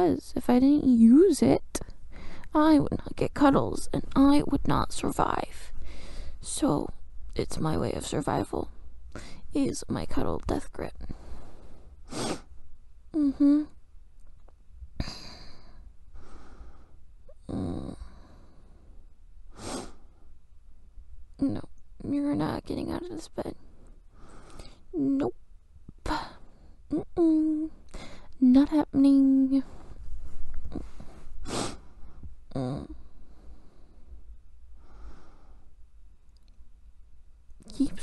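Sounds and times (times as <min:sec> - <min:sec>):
woman breathing softly: 0:01.8 - 0:02.5, 0:05.7 - 0:06.4, 0:09.1 - 0:09.5, 0:11.0 - 0:12.1, 0:15.0 - 0:17.0, 0:18.0 - 0:20.3, 0:23.6 - 0:24.9, 0:26.2 - 0:26.9, 0:27.8 - 0:28.4, 0:29.6 - 0:35.8
woman breathing out: 0:02.1 - 0:02.5, 0:05.8 - 0:06.4, 0:09.1 - 0:09.4, 0:27.9 - 0:28.3
woman humming: 0:13.1 - 0:13.8, 0:17.3 - 0:18.2, 0:24.9 - 0:25.4, 0:26.9 - 0:27.8, 0:32.5 - 0:33.1.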